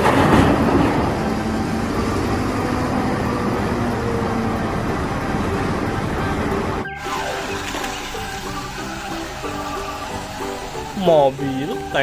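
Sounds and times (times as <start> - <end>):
diesel engine running under load: 0.0 - 12.0.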